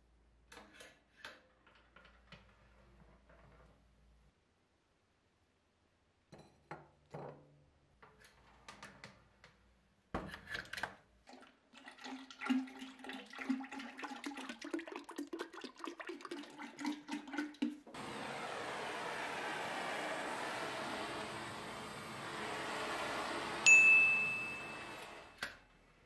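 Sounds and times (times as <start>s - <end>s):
oil pouring into metal pipe: 11.3s - 18.0s.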